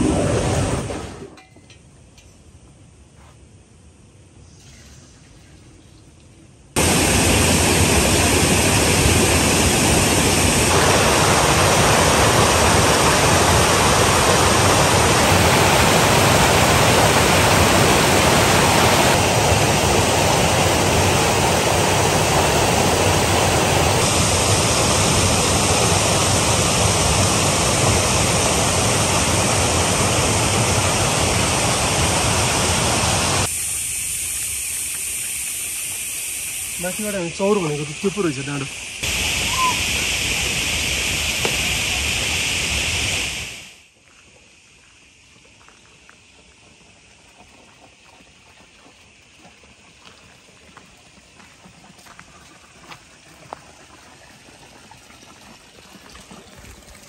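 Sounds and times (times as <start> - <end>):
stream water rushing: 6.8 - 33.5.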